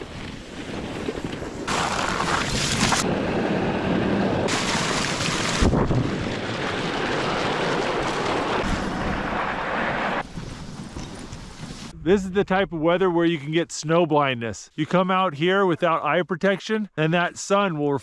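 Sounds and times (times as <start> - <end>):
sled runners scraping over snow: 0.0 - 3.1, 4.5 - 12.0
wind on microphone: 5.4 - 6.6.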